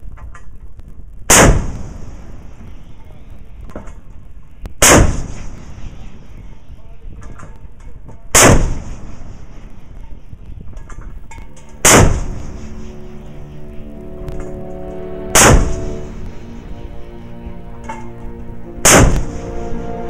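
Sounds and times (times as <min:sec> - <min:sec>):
deck gun firing: 0:04.8 - 0:05.4, 0:08.4 - 0:09.0.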